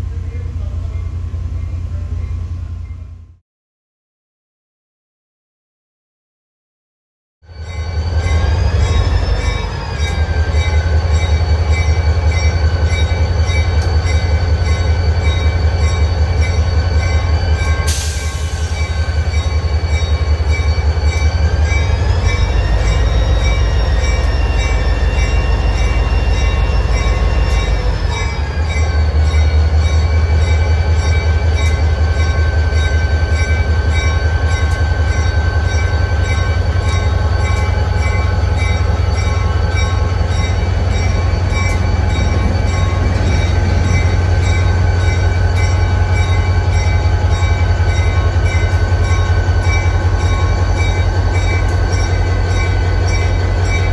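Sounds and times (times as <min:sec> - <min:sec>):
diesel locomotive running: 0:00.0 - 0:03.4, 0:07.5 - 0:53.9.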